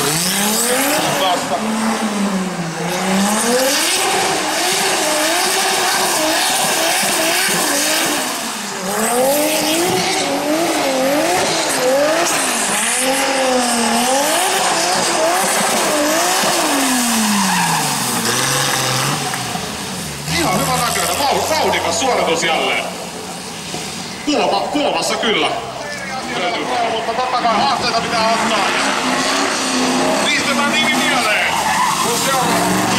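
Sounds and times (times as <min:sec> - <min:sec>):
car engine revving hard: 0:00.0 - 0:23.0, 0:27.5 - 0:32.9
tyre squeal: 0:30.6 - 0:32.9.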